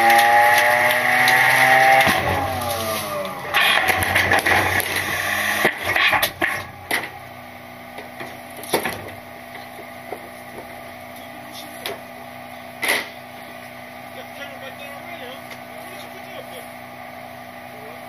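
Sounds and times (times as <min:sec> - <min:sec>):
trash knocking and cracking: 0:00.0 - 0:07.2, 0:07.9 - 0:10.8
garbage truck hopper rush: 0:00.0 - 0:16.4
truck engine humming: 0:00.0 - 0:18.0.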